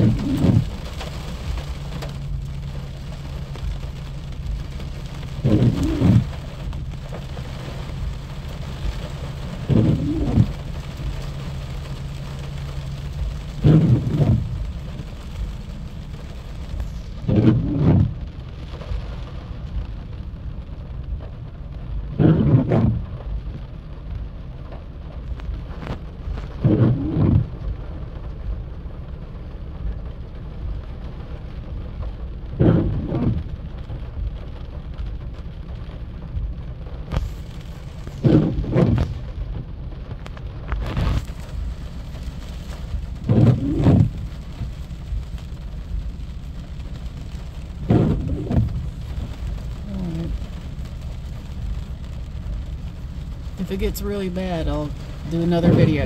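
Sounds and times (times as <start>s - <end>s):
thunder rumbling: 0.0s - 0.9s, 4.5s - 6.7s, 8.9s - 11.2s, 13.0s - 18.9s, 32.5s - 33.6s, 37.1s - 39.6s, 40.6s - 56.0s
rain: 0.0s - 56.0s
wind: 0.0s - 56.0s
low hum: 36.2s - 53.8s.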